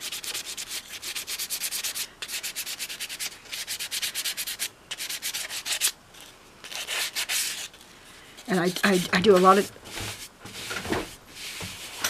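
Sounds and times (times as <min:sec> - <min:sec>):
sandpaper rasping: 0:00.0 - 0:06.0, 0:06.6 - 0:07.7.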